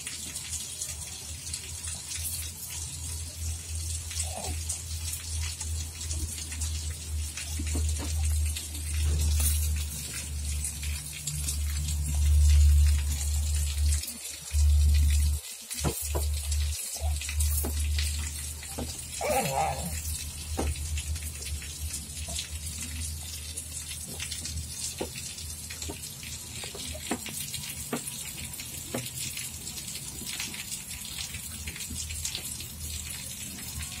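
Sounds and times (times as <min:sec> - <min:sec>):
baby vocalization: 0:04.2 - 0:04.8, 0:19.2 - 0:20.1.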